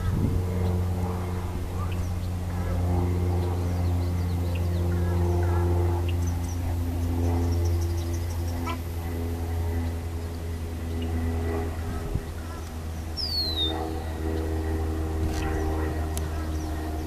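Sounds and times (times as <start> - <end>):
low motor hum: 0.0 - 17.0
faint bird chirps and whistles: 13.2 - 13.8.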